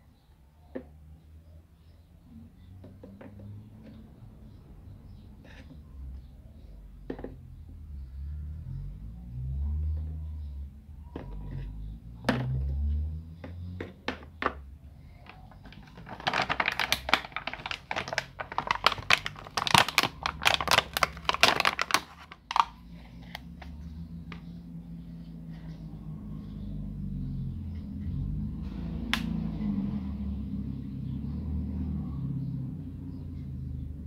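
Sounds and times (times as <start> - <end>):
plastic crinkling: 15.5 - 23.4.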